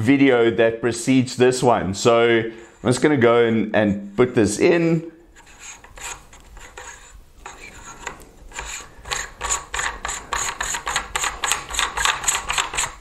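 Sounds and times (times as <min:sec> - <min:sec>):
threads rasping: 0:04.2 - 0:13.0.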